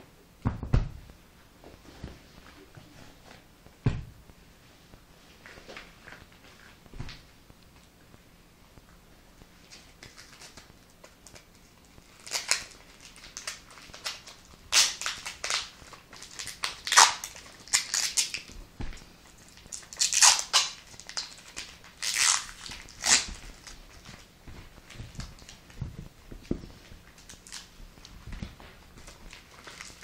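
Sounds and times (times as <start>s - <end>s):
rubber gloves rustling: 9.3s - 30.0s.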